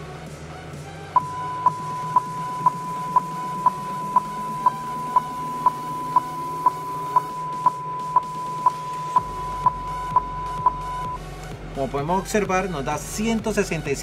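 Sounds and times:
steady test tone: 1.2s - 11.2s.

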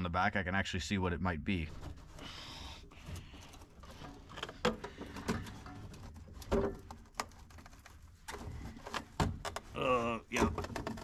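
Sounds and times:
hands clicking and knocking parts: 3.0s - 11.0s.

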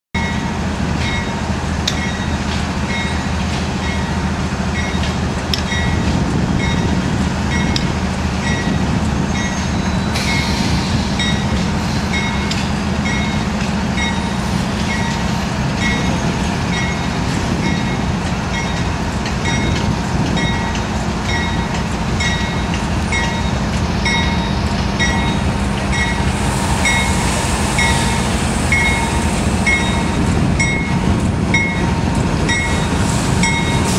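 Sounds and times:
diesel locomotive engine rumble: 0.1s - 33.9s
locomotive bell ringing: 0.2s - 5.1s, 5.7s - 6.0s, 6.6s - 7.8s, 11.2s - 33.9s
hiss: 10.0s - 12.9s, 25.3s - 30.4s, 32.6s - 33.9s.

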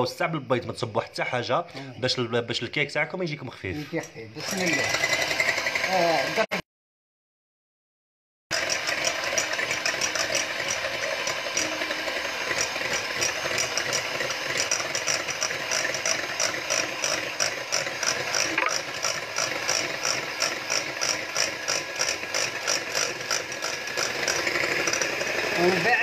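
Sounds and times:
electric hand mixer whirring: 4.4s - 6.6s, 8.5s - 26.0s.

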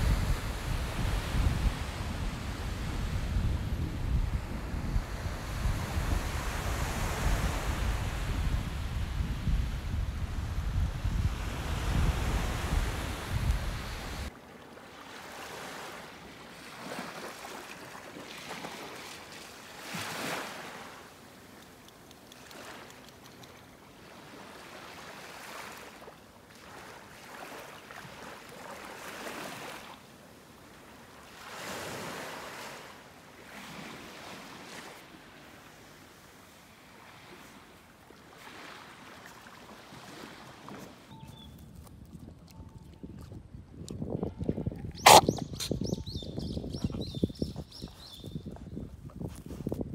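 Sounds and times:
wind buffeting microphone: 0.0s - 14.3s, 41.1s - 49.9s
small waves washing onto beach: 0.0s - 41.1s.

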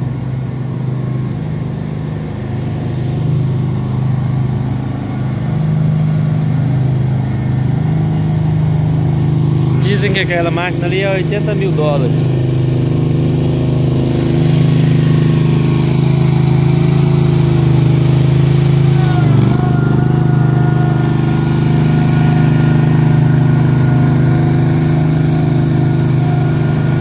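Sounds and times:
heavy machine engines running: 0.0s - 27.0s.

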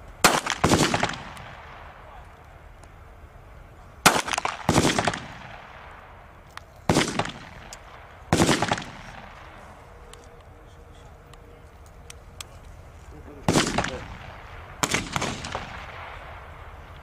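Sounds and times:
pistol shots with echo: 0.2s - 2.1s, 4.0s - 6.2s, 6.9s - 9.6s, 13.4s - 16.8s.

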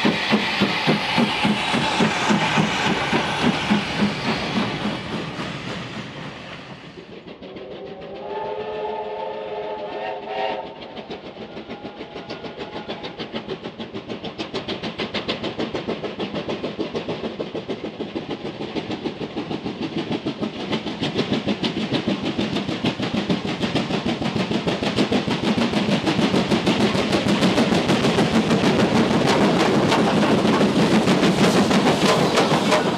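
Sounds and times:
steam locomotive exhaust beats: 0.0s - 32.9s
steam locomotive whistle: 7.6s - 11.0s.

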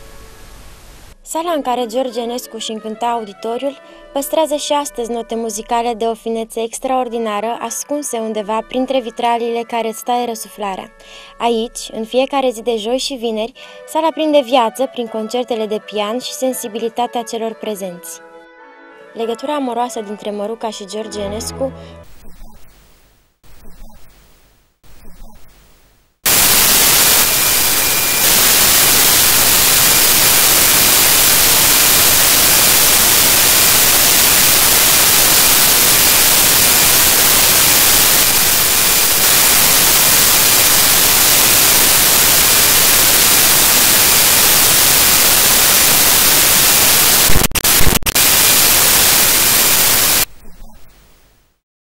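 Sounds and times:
tv static hiss: 0.0s - 1.2s, 22.1s - 51.6s.

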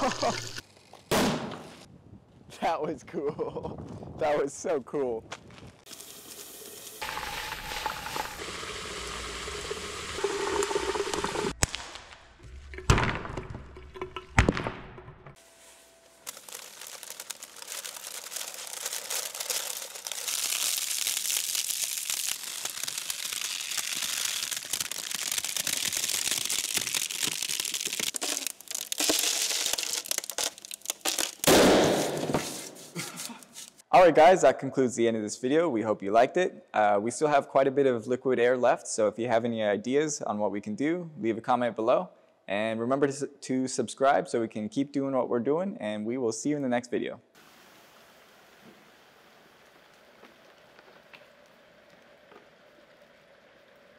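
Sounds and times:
liquid boiling violently in water: 5.9s - 11.6s, 16.3s - 31.1s.

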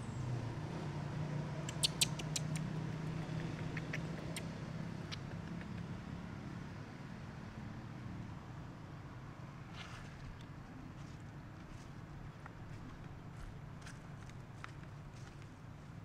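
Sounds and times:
low engine hum: 0.0s - 16.0s
sharp clicks: 1.7s - 2.7s, 3.3s - 4.5s, 5.1s - 5.9s.

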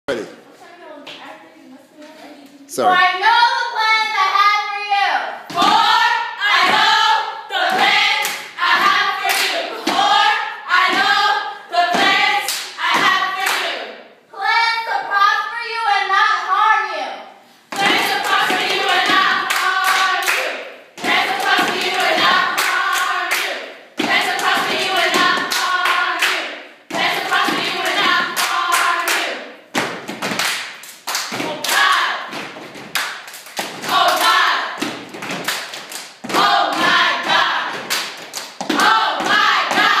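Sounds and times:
girls chanting in unison: 2.9s - 30.5s, 31.1s - 32.4s, 33.6s - 35.6s, 36.2s - 40.0s
hand claps: 28.2s - 37.0s.

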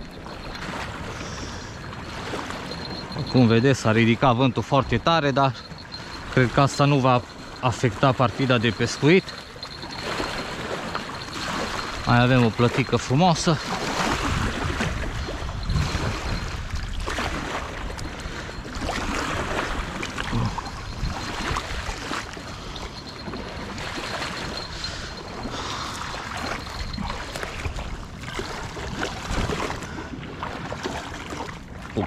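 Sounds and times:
strong wind buffeting microphone: 0.0s - 30.4s
water lapping against bank: 0.0s - 32.0s.

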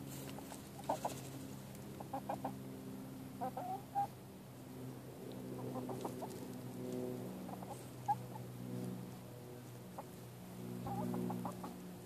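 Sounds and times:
birds ticking through dry straw: 0.0s - 2.6s, 5.2s - 12.0s
hens purring: 9.9s - 11.8s.

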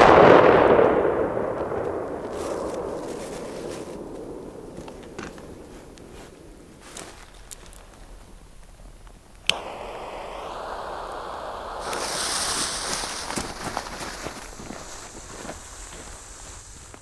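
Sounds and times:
torch lighter click: 9.4s - 14.0s
fuse hissing and sputtering: 9.4s - 17.0s
lighter flame hissing: 9.4s - 17.0s.

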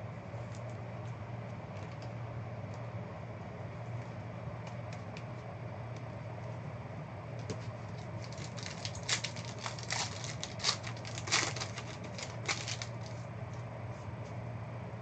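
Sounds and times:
steady low hum: 0.0s - 15.0s
foil wrapper crinkling: 7.7s - 13.3s.

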